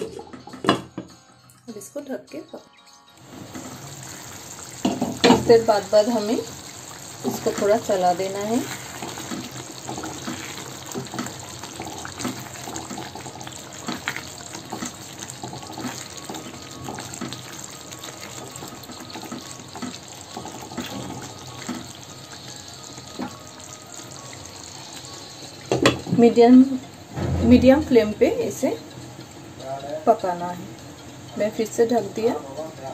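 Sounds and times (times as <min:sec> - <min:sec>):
curry simmering in a pan: 0:03.2 - 0:27.1.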